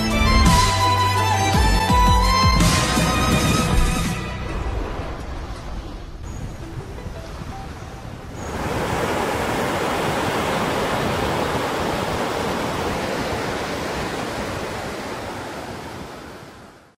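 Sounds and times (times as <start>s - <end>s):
sea surf washing on shore: 4.4s - 17.0s.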